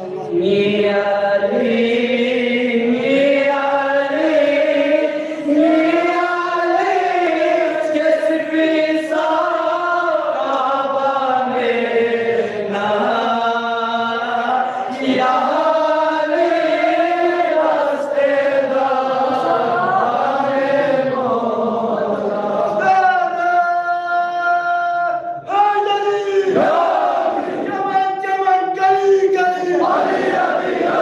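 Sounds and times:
man chanting into a microphone: 4.8s - 16.5s, 22.5s - 26.7s, 27.6s - 30.0s.

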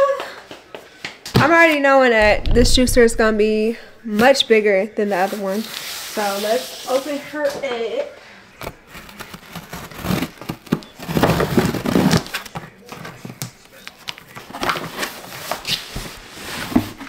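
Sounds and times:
cardboard scraping and rustling: 8.6s - 12.4s.

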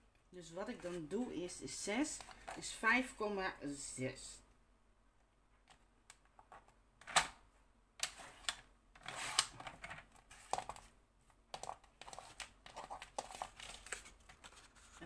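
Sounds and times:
paper handling clicks and taps: 11.5s - 14.7s.

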